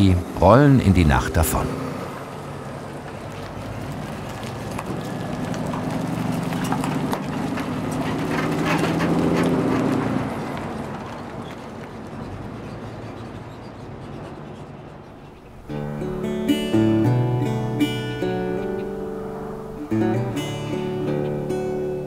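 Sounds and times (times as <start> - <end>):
trailers knocking and clattering: 0.0 - 15.1
truck droning hum: 0.0 - 22.0.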